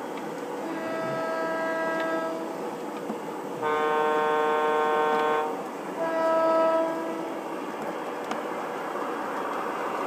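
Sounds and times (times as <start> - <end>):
model locomotive horn: 0.6 - 2.6, 3.6 - 7.3.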